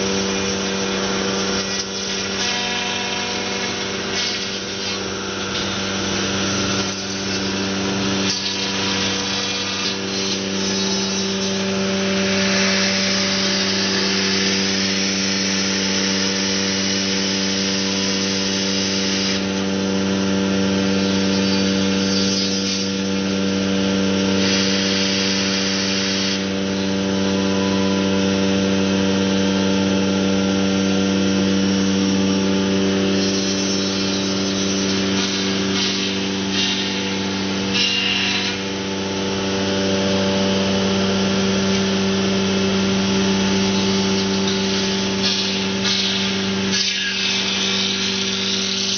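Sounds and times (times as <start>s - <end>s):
spindle whine: 26.5s - 33.2s.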